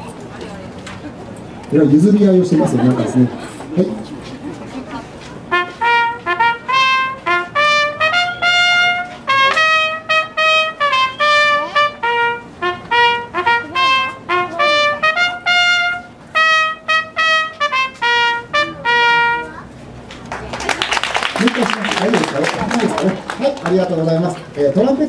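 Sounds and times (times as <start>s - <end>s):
trumpets playing a fanfare: 5.4s - 19.7s.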